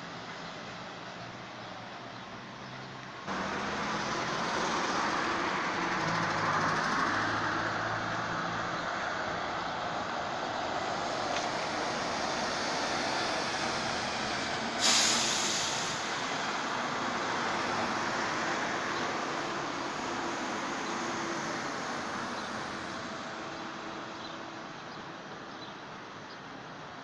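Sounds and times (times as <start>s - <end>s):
bus driving off: 0.0s - 27.0s
air brake hiss: 14.8s - 16.2s.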